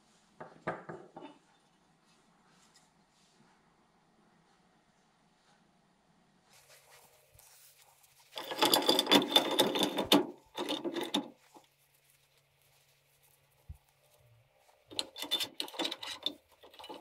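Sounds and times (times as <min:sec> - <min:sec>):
bench vise metallic clatter: 0:08.4 - 0:11.4, 0:14.9 - 0:17.0.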